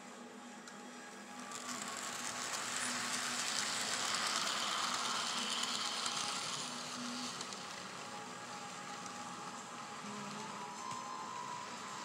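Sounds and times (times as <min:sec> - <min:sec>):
model train wheels clicking on track: 0:01.2 - 0:12.0
small electric motor whirring: 0:01.5 - 0:07.9.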